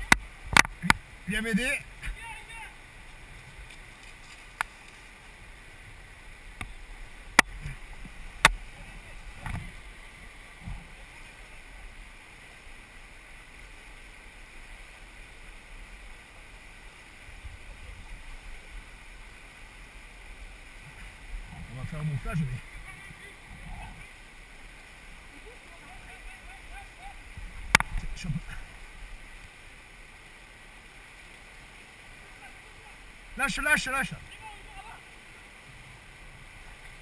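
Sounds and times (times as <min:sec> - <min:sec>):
mountain river rushing: 0:00.0 - 0:37.0.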